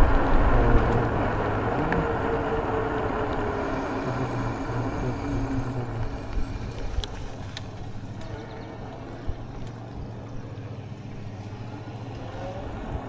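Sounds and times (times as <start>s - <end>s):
wind and road rumble: 0.0s - 13.0s
light clicks and ticks: 3.2s - 10.7s.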